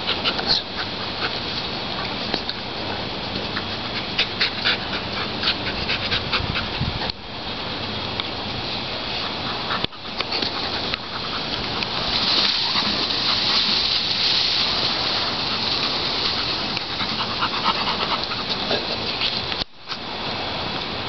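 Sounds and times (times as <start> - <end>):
dog panting: 0.0 - 2.2, 3.3 - 7.1, 9.1 - 13.8, 15.2 - 19.2.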